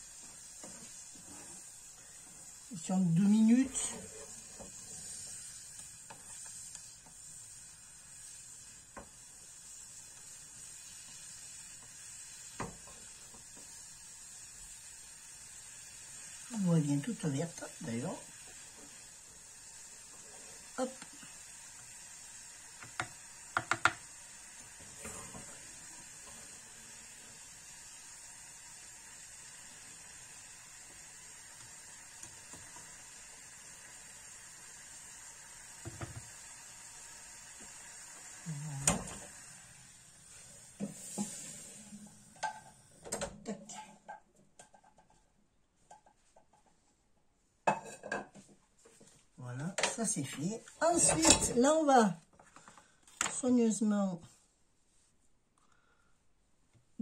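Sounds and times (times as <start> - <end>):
gas stove hiss: 0.0 - 44.1, 47.7 - 54.0
spoon knocking on saucepan: 22.8 - 24.0.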